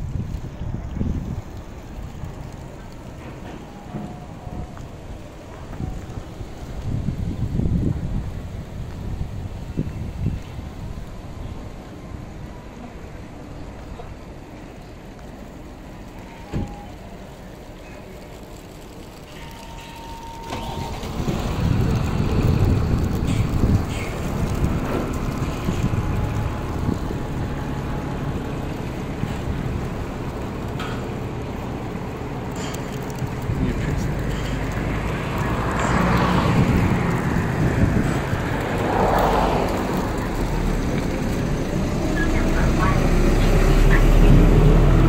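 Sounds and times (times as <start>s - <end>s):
wind buffeting microphone: 0.0s - 15.1s, 20.6s - 45.0s
diesel truck driving slowly: 0.0s - 45.0s
vehicle whooshes: 18.2s - 45.0s
low rumble: 18.3s - 45.0s.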